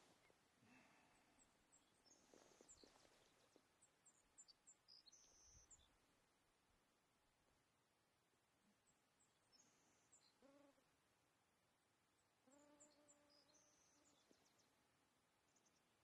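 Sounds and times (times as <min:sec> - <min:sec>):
faint high bird chirps: 0:01.4 - 0:06.0, 0:12.5 - 0:14.7.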